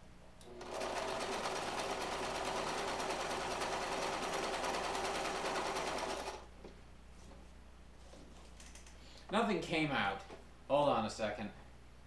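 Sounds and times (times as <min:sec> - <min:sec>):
sewing machine stitching: 0:00.5 - 0:06.5.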